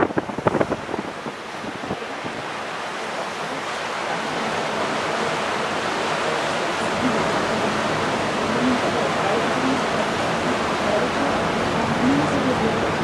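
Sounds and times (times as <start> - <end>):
wind rushing: 0.0 - 2.6
churning water of ship's wake: 0.0 - 13.0
wind gusts buffeting microphone: 0.0 - 13.0.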